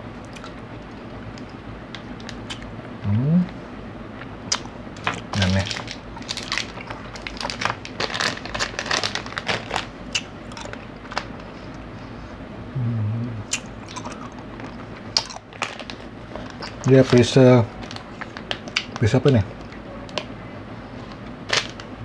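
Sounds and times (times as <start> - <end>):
crunching and chewing snack: 0.3 - 2.7, 4.2 - 11.8, 13.5 - 20.2, 21.0 - 21.9
person humming: 3.0 - 3.5, 12.7 - 13.6.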